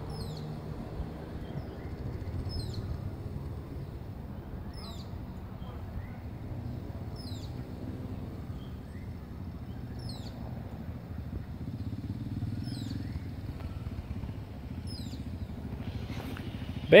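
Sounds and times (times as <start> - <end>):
bird chirping: 0.0 - 3.0, 4.7 - 10.8, 12.4 - 17.0
small motorcycle engine running: 6.4 - 17.0.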